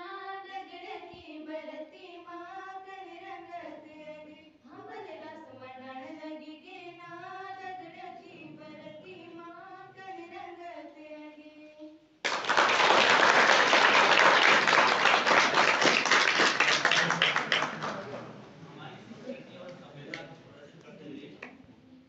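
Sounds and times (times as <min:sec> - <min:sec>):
girls singing unaccompanied: 0:00.0 - 0:12.0
audience applause: 0:12.3 - 0:18.3.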